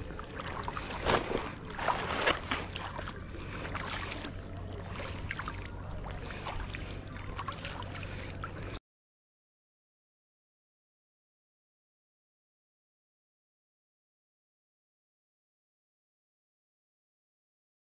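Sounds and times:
fishing net hauled from water: 0:00.0 - 0:08.8
water splashing and dripping: 0:00.0 - 0:08.8.

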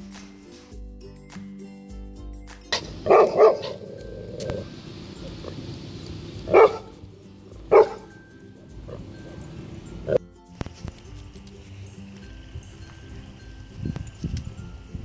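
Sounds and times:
dog barking: 0:02.8 - 0:04.7, 0:06.4 - 0:07.0, 0:07.6 - 0:08.2.

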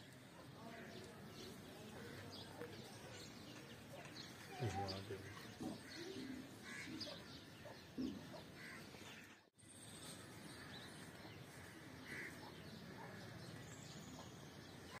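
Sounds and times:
bird chirps and calls: 0:00.8 - 0:09.4.

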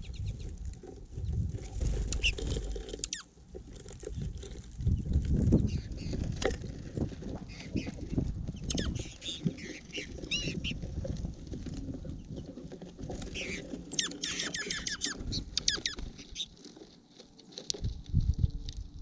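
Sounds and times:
birds pecking and scratching seed: 0:00.0 - 0:19.0
high bird chirps: 0:08.6 - 0:10.8, 0:13.3 - 0:16.5.

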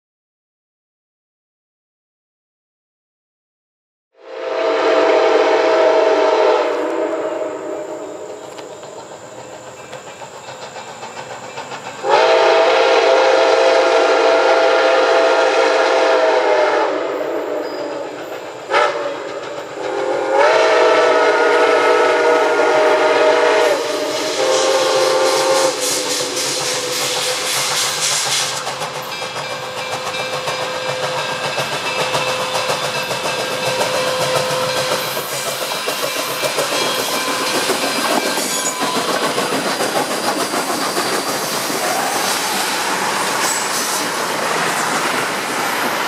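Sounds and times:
steam whistle blasts: 0:04.2 - 0:09.0, 0:12.0 - 0:28.7, 0:30.0 - 0:39.6
steam locomotive chuffing: 0:04.2 - 0:46.0.

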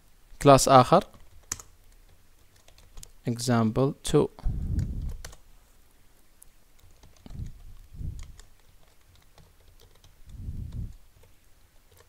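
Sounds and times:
keyboard typing clicks: 0:01.2 - 0:03.1.

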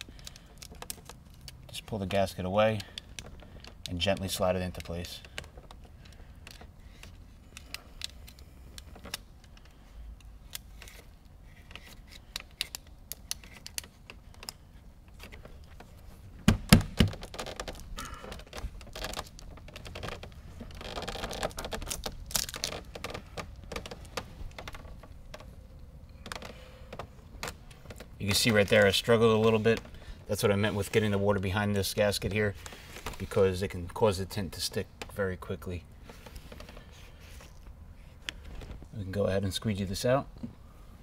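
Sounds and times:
film clicks and crinkles on glass: 0:00.0 - 0:02.1, 0:02.7 - 0:15.8, 0:17.0 - 0:25.5.

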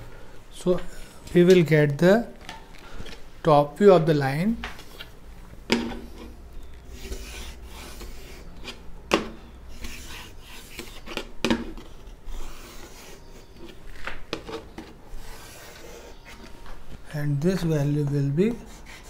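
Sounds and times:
chalk scraping on chalkboard: 0:05.9 - 0:08.8, 0:09.7 - 0:16.6, 0:18.5 - 0:19.0.

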